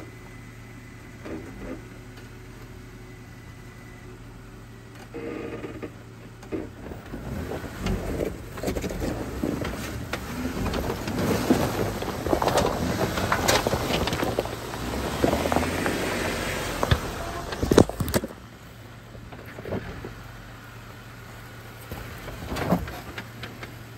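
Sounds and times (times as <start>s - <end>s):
vehicle engine humming: 0.0s - 23.9s
tyres crunching on stones: 6.6s - 20.8s.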